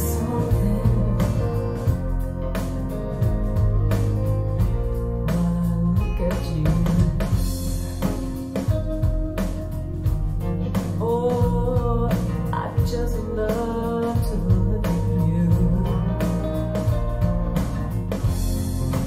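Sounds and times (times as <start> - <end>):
person singing: 0.0 - 2.2, 5.2 - 8.9, 10.4 - 16.9
drum beat: 0.0 - 19.0
guitar: 0.0 - 19.0
rock music through speakers: 0.0 - 19.0.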